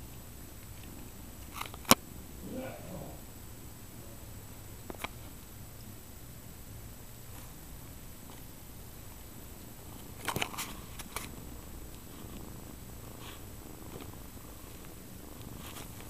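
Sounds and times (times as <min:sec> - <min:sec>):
cat purring: 0:00.0 - 0:16.0.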